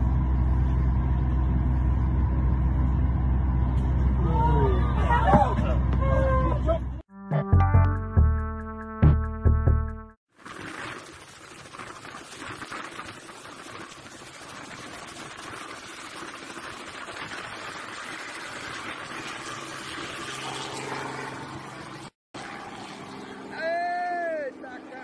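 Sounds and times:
faint engine hum: 0.0 - 7.0
helicopter rotor and engine: 20.4 - 22.1.

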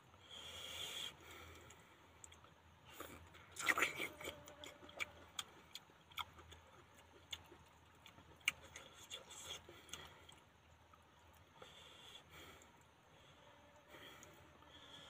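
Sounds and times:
chewing clicks: 1.4 - 11.8.

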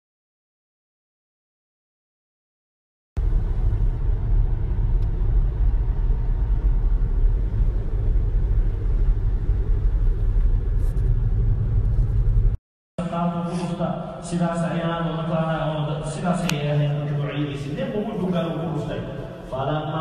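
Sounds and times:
car cabin rumble: 3.2 - 12.6.

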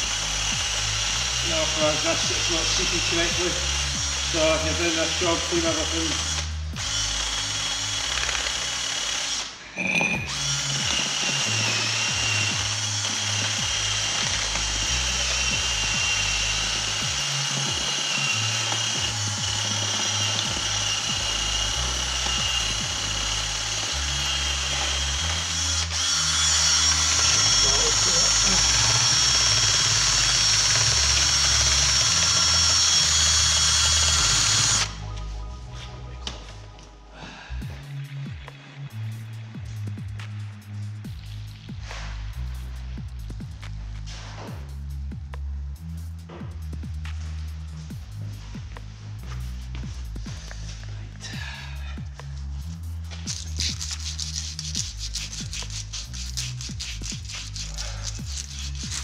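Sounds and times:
cordless power drill running: 0.0 - 35.0.

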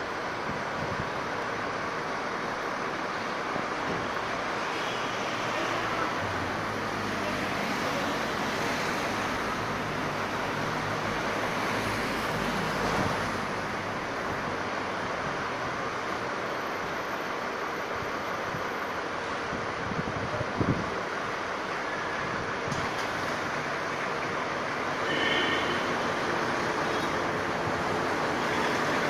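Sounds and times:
street hum: 0.0 - 29.0.

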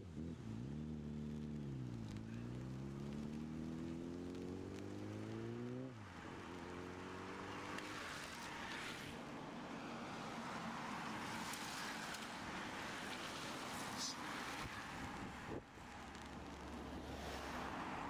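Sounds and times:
bicycles passing with tyre hiss: 7.7 - 18.0.

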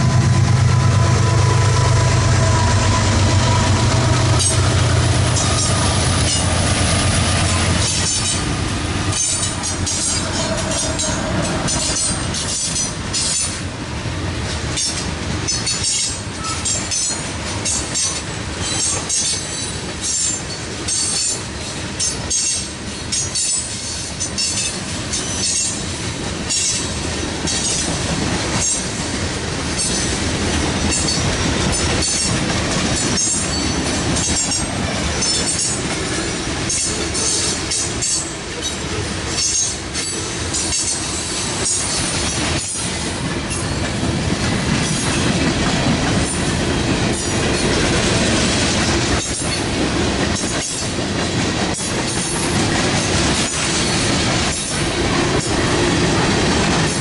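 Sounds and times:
train wheels rumbling on rail: 0.0 - 57.0
high-pitched wheel squeal: 0.1 - 4.8.

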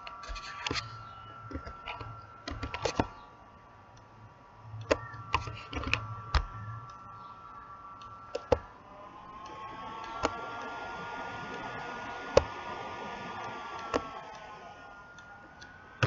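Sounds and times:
keyboard and mouse clicking: 0.0 - 3.2, 4.7 - 8.7, 9.4 - 10.8, 13.3 - 14.5
faint electrical whine: 0.0 - 16.0.

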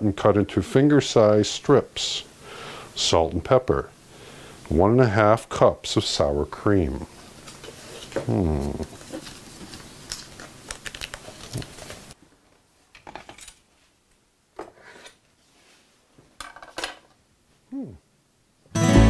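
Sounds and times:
background hiss: 0.0 - 19.0
paper rustling: 8.8 - 12.2.

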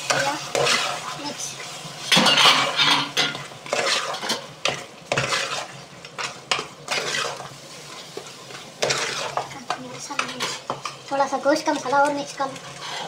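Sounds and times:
frying sizzle: 0.0 - 13.0
metal spoon scraping pot: 8.8 - 9.5.

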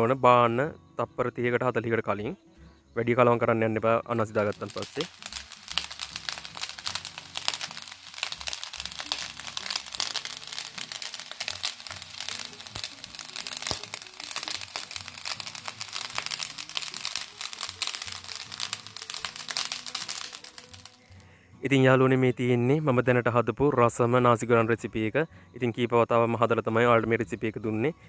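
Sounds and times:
background music: 0.0 - 28.0
rice sizzling in a wok: 4.2 - 21.3.

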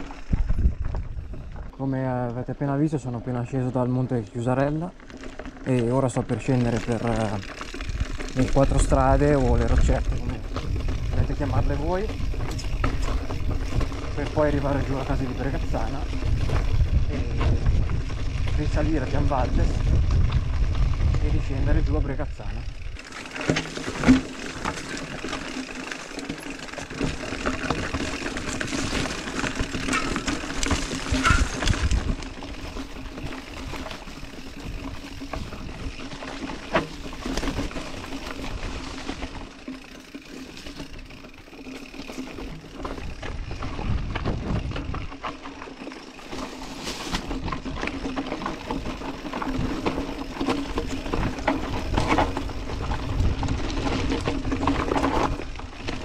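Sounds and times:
bike frame and chain rattling: 0.0 - 56.0
tyres crunching over dirt and stones: 0.0 - 56.0
leaves and branches brushing: 22.9 - 44.6, 46.2 - 56.0.

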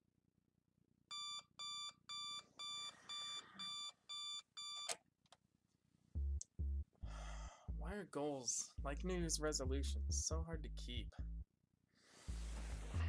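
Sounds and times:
alarm clock beeping: 1.1 - 4.9.

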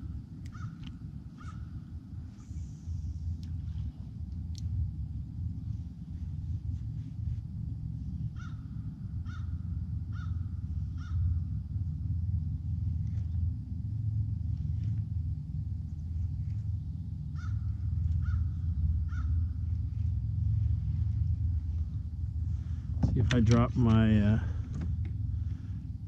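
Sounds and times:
steady low rumble: 0.0 - 26.0
crow cawing: 0.5 - 0.8, 1.4 - 1.6, 8.4 - 8.6, 9.2 - 11.3, 17.4 - 17.6, 18.2 - 19.4.

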